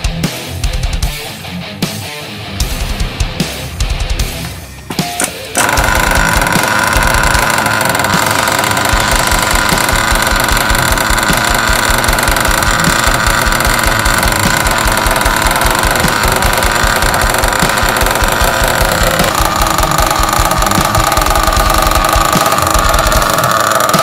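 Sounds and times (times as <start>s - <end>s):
nitro engine idling: 5.6s - 24.0s.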